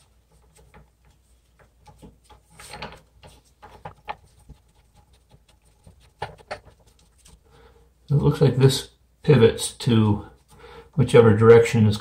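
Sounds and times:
gloved hands rubbing plastic: 0.0 - 7.5.

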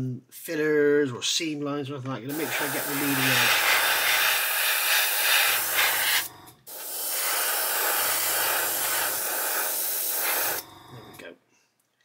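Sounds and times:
airbrush spraying hiss: 2.3 - 10.7.

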